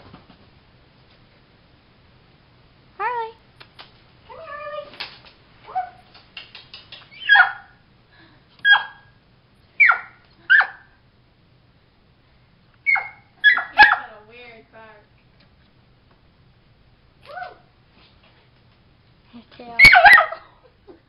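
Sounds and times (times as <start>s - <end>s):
puppy yapping: 5.6s - 7.8s, 8.6s - 9.1s, 9.8s - 11.0s, 12.8s - 14.1s, 19.8s - 20.5s.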